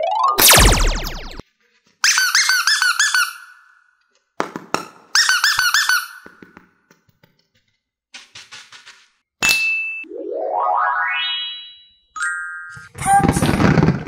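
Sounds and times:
rubber squeeze toy squeaking: 5.2 - 6.3.

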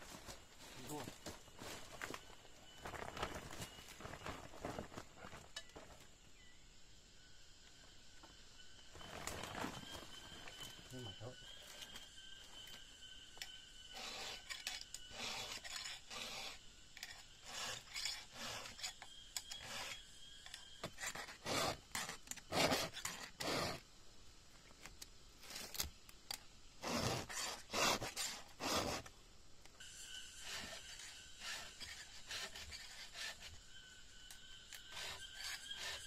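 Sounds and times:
hand saw cutting wood: 13.9 - 16.6, 17.4 - 18.9, 20.8 - 23.8, 26.8 - 29.1, 30.4 - 33.6.

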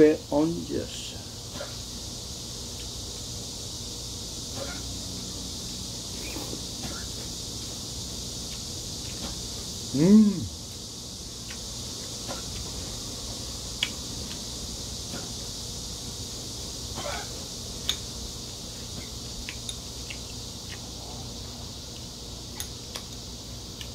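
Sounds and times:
steady high hiss: 0.0 - 23.9
man humming: 9.9 - 10.6
chopsticks clicking against a bowl: 19.4 - 20.8.

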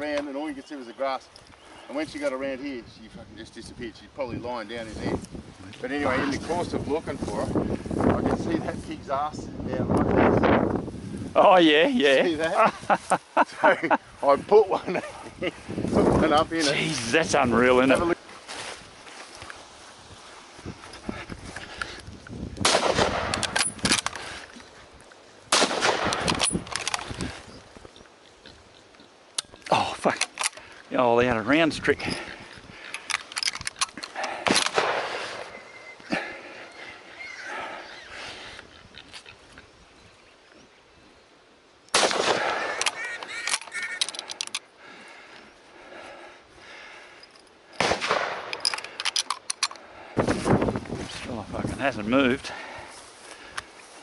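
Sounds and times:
rifle shots: 22.6 - 24.0, 25.5 - 26.9, 34.4 - 35.4, 41.9 - 43.0, 47.8 - 48.6
sharp clicks: 22.6 - 24.3, 25.6 - 27.4, 41.9 - 44.7.

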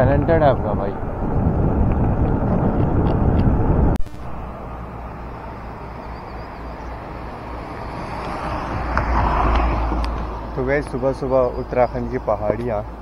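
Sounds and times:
wind buffeting the microphone: 0.0 - 4.0, 7.6 - 13.0.

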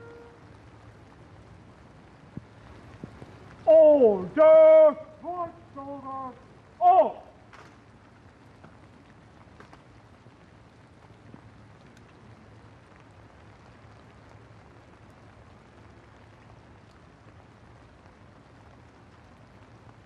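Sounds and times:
light rain on pavement: 0.0 - 20.0.

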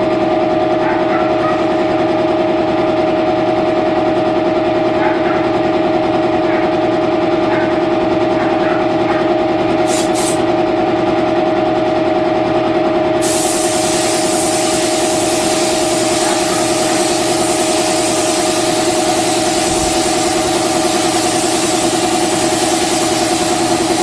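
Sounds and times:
air compressor motor drone: 0.0 - 24.0
paint spray gun hissing: 9.8 - 10.5, 13.2 - 24.0.

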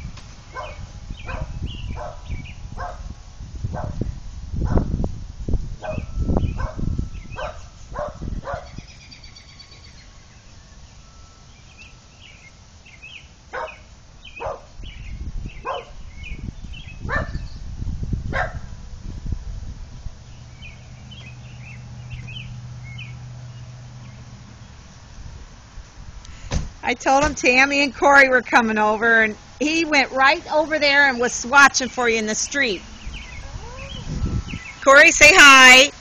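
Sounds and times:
faint birds chirping: 0.0 - 4.3, 5.8 - 17.8, 20.0 - 25.1, 28.6 - 36.0
small dog barking: 0.6 - 3.1, 5.8 - 6.8, 7.4 - 8.8, 13.6 - 13.8, 14.4 - 14.7, 15.6 - 16.0, 17.1 - 17.4, 18.3 - 18.7.

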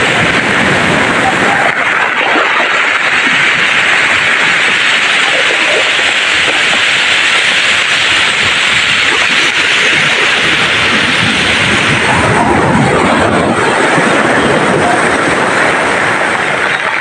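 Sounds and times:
surf breaking on pebble beach: 0.0 - 17.0.

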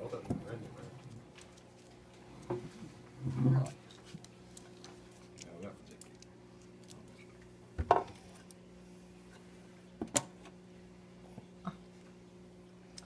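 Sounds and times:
low hum of aquarium equipment: 0.0 - 13.0.

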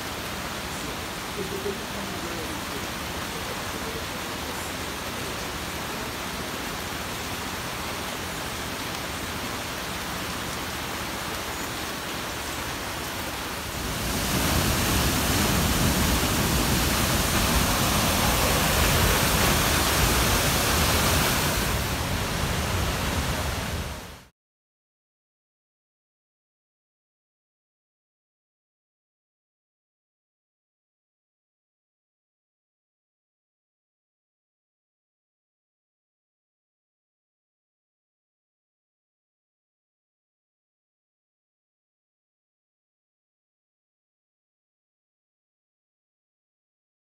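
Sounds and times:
distant falling water: 0.0 - 24.3
rain hiss: 0.0 - 24.3
waterfall rushing: 0.0 - 24.3.

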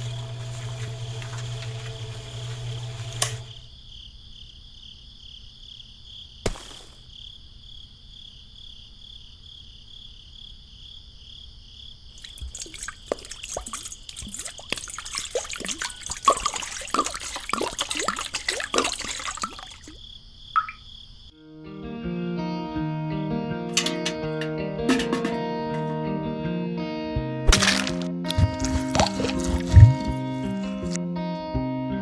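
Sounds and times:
wet cement pouring into bucket: 0.0 - 3.5, 12.2 - 20.0, 27.5 - 31.0.

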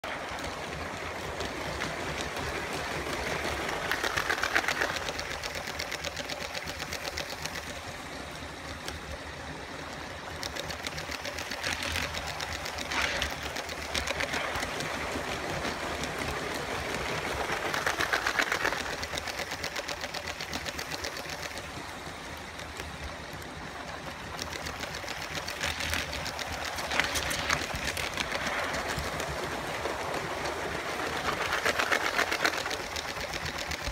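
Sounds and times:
toy train wheels clattering on track: 0.0 - 33.9
toy train motor whir: 0.4 - 33.9.

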